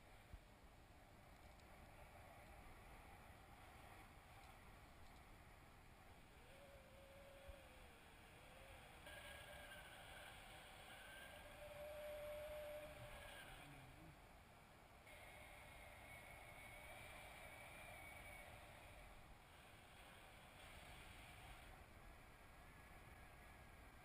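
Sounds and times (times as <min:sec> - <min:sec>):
thin wavering whistling: 0:06.3 - 0:14.1, 0:15.1 - 0:19.2.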